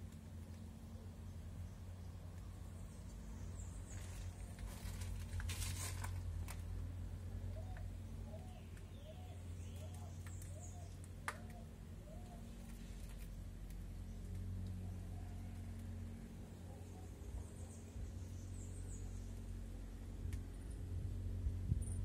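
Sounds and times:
rustle: 0.0s - 22.0s
steady low hum: 0.0s - 22.0s
bird calling: 7.5s - 12.8s.

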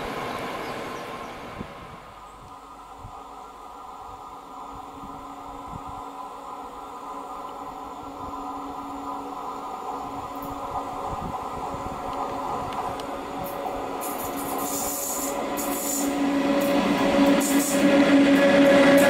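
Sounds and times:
electric locomotive hum: 0.0s - 19.0s.

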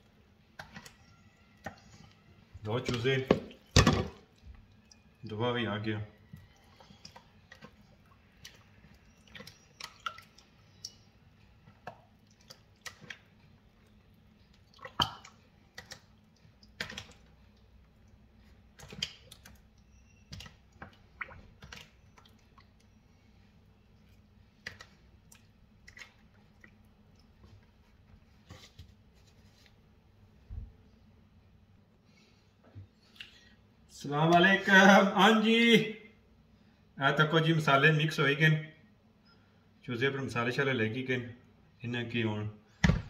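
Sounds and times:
hands squelching wet marinade: 0.0s - 28.7s.

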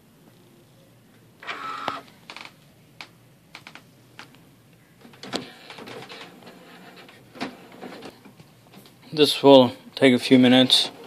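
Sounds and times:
printer motor whir: 1.4s - 2.1s.

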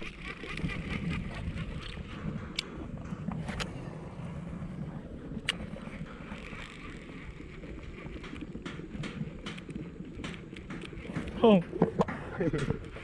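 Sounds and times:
wind rumbling on microphone: 0.0s - 13.0s
fishing reel winding: 6.3s - 7.5s.

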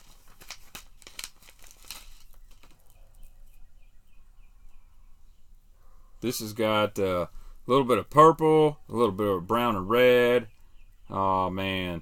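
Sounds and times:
plastic packaging crinkling: 0.0s - 3.4s.

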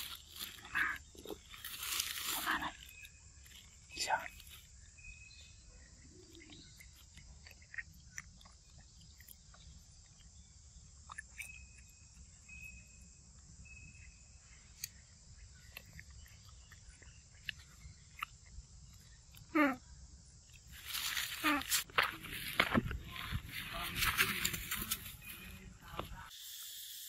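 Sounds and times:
monkey chewing: 6.0s - 12.3s, 14.6s - 19.5s
high insect drone: 17.9s - 27.0s.

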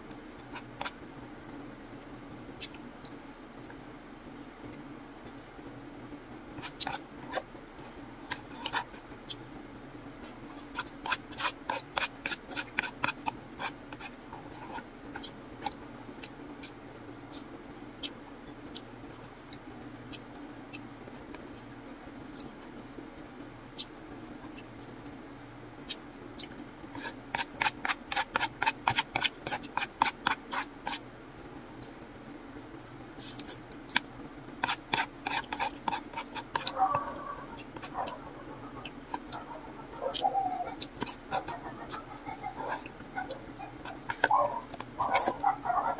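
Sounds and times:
steady low hum: 0.0s - 45.9s
wet chewing and mouth sounds: 17.3s - 21.7s, 31.8s - 45.9s.

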